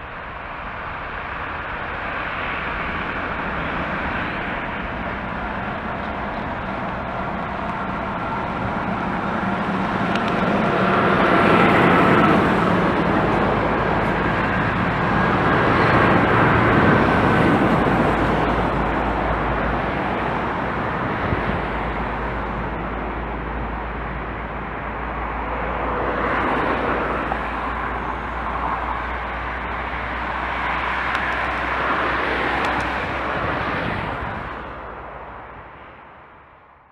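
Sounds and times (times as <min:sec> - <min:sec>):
jet engines at takeoff: 0:00.0 - 0:36.9.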